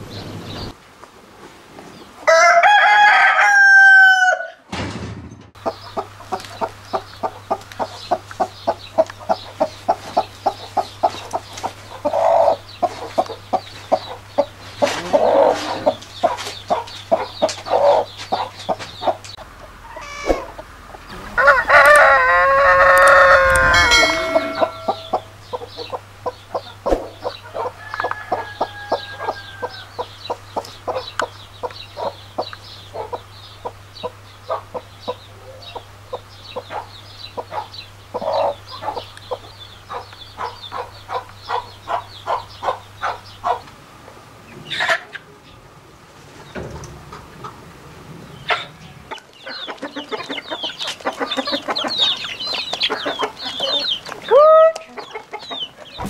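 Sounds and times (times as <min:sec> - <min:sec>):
rooster crowing: 0:02.2 - 0:04.6, 0:19.8 - 0:25.3, 0:27.6 - 0:30.1
hen clucking: 0:05.6 - 0:43.8, 0:44.5 - 0:45.4, 0:48.4 - 0:56.0.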